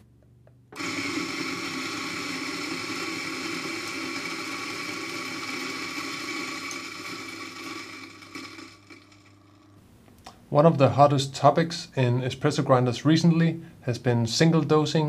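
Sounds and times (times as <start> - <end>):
coffee grinder running: 0.8 - 9.8.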